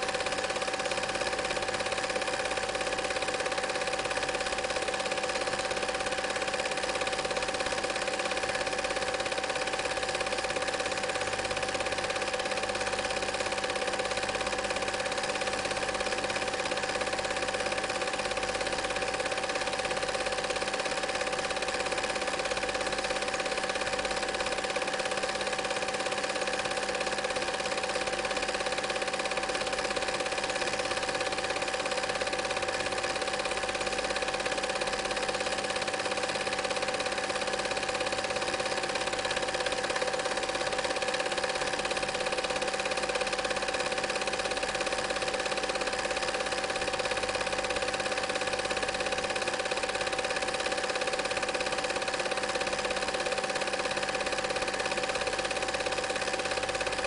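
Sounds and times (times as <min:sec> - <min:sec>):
film projector whirring: 0:00.0 - 0:57.0.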